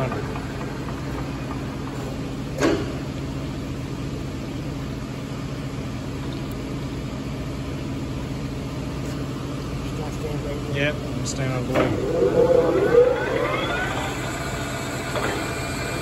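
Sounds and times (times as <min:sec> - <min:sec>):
metal lathe humming: 0:11.8 - 0:16.0.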